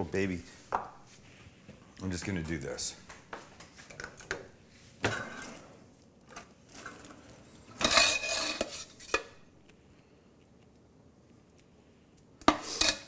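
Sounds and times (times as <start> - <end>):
utensil scraping: 6.7 - 9.3.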